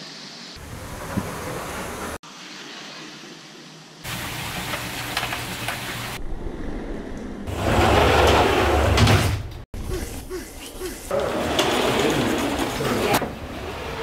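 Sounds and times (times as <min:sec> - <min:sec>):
sliding glass doors rolling: 0:00.6 - 0:02.2, 0:07.5 - 0:09.6, 0:11.1 - 0:14.0.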